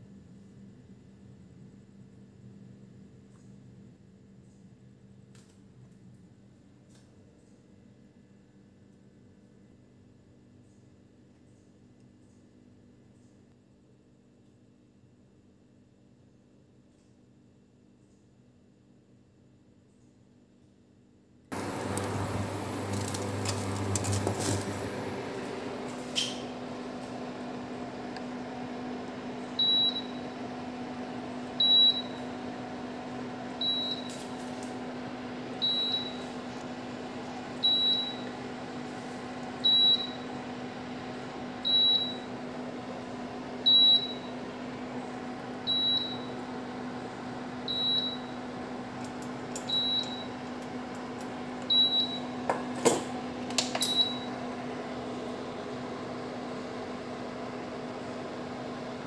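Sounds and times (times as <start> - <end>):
appliance fan humming: 21.4 - 59.0.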